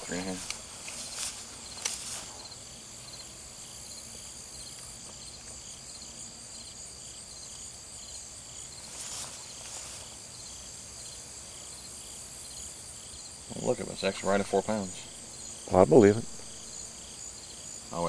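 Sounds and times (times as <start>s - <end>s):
brief rustle: 0.0s - 2.4s
insects chirping: 0.0s - 18.0s.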